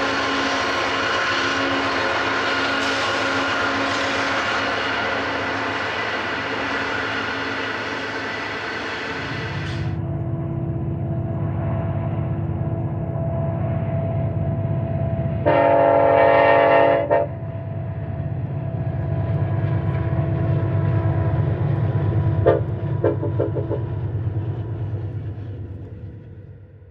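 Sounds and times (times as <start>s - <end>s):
train passing: 0.0s - 26.9s
locomotive air horn blast: 15.4s - 17.5s, 22.4s - 23.4s
diesel engine rumble: 17.4s - 26.9s.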